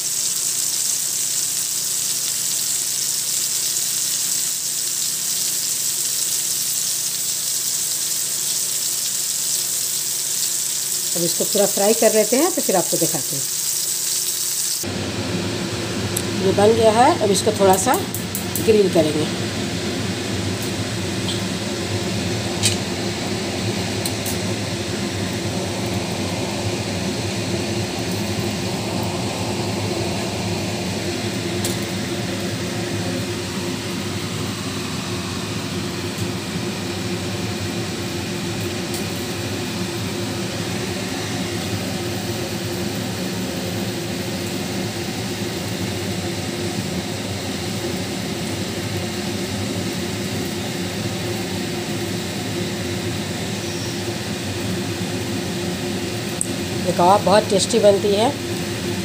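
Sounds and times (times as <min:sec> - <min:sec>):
fan whirring hum: 0:00.0 - 0:59.0.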